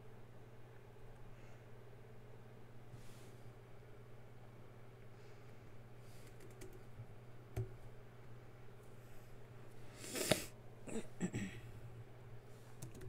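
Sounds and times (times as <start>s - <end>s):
keyboard typing: 6.2s - 6.9s, 12.8s - 13.0s.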